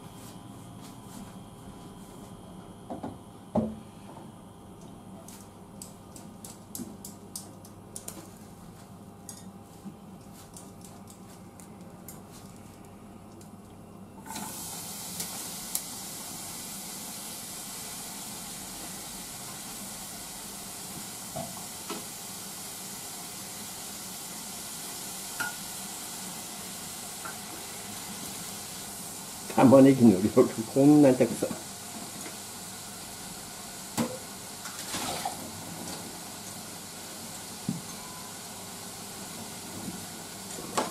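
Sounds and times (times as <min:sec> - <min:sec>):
vegetables sizzling in a pan: 0:14.3 - 0:40.9.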